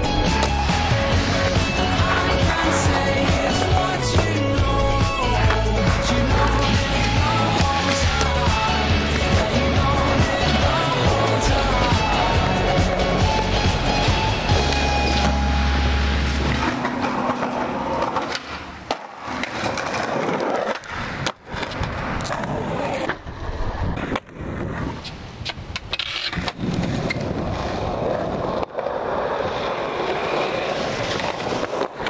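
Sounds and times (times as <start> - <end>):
skateboard wheels rolling on concrete: 0.0 - 32.0
skateboard pops and landings: 16.4 - 23.2.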